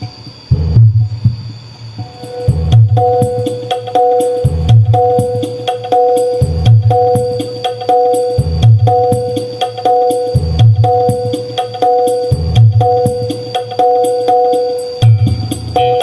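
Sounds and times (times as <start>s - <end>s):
song through subwoofer: 0.5s - 16.0s
deep bass hits: 2.5s - 3.7s, 4.5s - 5.4s.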